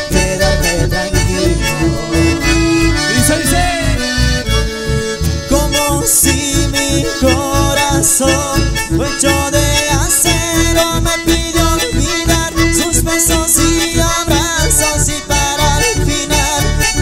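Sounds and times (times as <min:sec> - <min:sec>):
accordion playing melody: 0:00.0 - 0:17.0
electric bass: 0:00.0 - 0:17.0
strummed acoustic guitar: 0:00.0 - 0:17.0
steady dance beat: 0:00.9 - 0:04.2.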